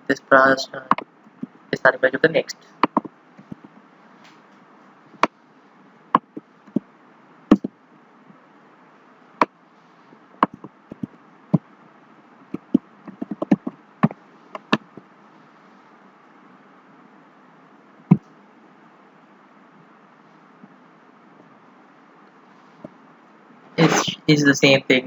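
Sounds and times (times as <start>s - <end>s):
computer mouse clicks: 2.8s - 3.7s, 10.4s - 11.1s, 12.6s - 15.0s
keyboard key presses: 2.8s - 3.7s, 7.5s - 7.7s, 10.4s - 11.1s, 12.6s - 15.0s.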